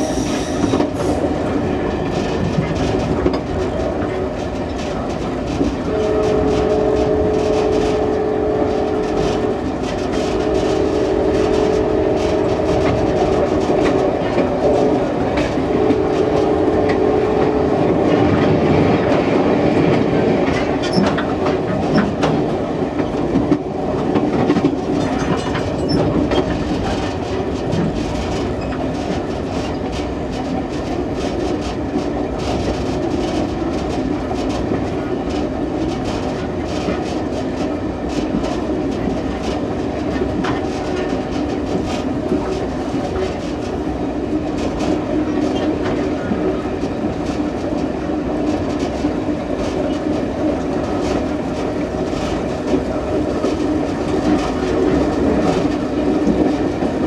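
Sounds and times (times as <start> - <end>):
rail joint clicks: 0.0 - 57.0
train wheels on rails: 0.0 - 57.0.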